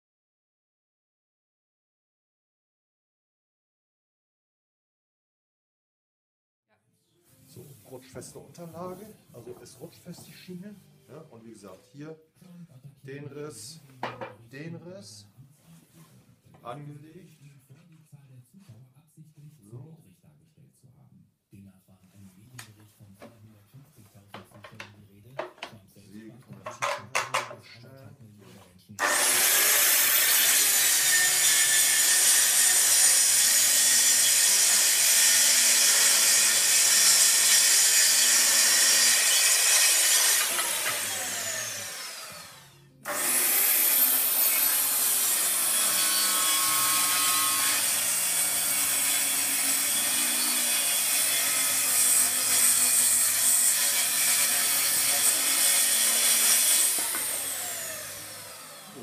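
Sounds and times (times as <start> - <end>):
circular saw cutting wood: 29.0 - 59.0.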